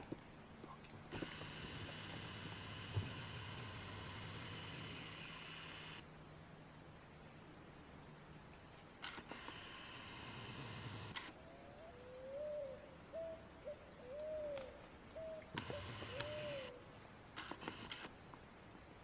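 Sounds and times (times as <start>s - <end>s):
camcorder zoom motor whirring: 1.1s - 6.0s, 9.0s - 11.4s, 15.5s - 16.8s, 17.4s - 18.1s.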